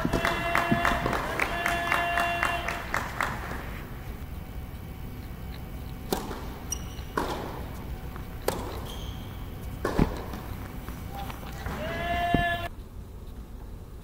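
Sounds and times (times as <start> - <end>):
tennis racket hitting ball: 0.0 - 1.6, 6.0 - 12.7
tennis ball bouncing: 0.0 - 2.0, 5.2 - 12.7.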